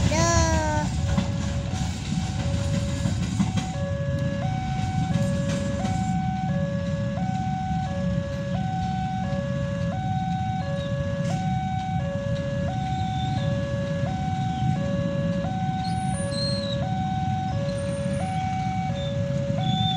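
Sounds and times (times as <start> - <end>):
low engine rumble: 0.0 - 10.2.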